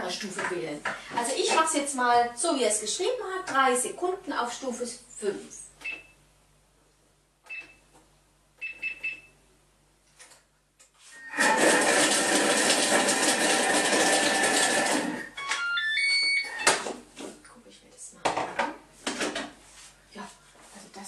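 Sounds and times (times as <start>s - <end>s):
food processor blade whirring: 11.2s - 15.3s
beeps at different pitches: 15.3s - 16.7s.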